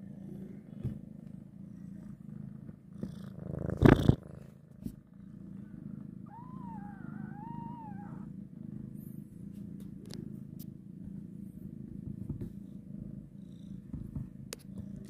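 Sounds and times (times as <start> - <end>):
cat purring: 0.0 - 15.0
kitten mewing: 6.3 - 8.3.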